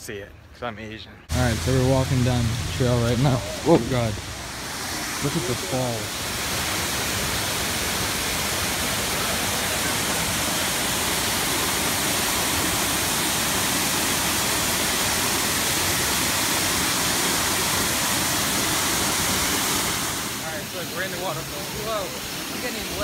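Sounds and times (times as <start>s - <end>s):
waterfall rushing: 1.3s - 23.0s.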